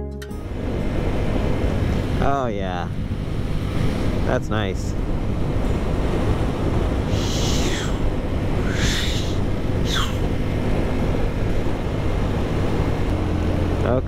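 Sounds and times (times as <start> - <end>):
wind noise on microphone: 2.9 - 13.6.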